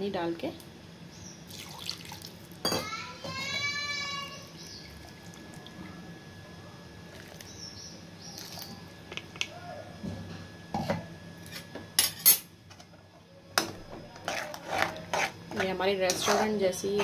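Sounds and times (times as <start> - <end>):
metal spoon stirring: 14.2 - 17.0.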